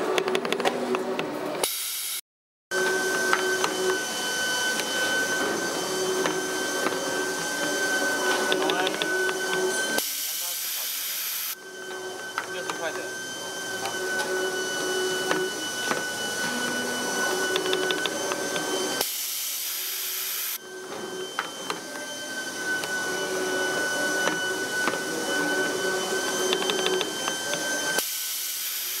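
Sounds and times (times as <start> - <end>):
machine whine: 0.0 - 29.0
clicks of tools bending wire: 26.5 - 27.6.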